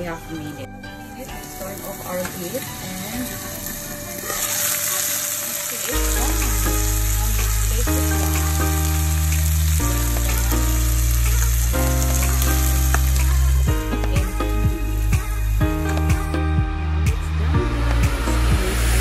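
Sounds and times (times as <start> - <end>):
meat sizzling in a pan: 1.3 - 15.6
background music with bass chords: 5.9 - 19.0.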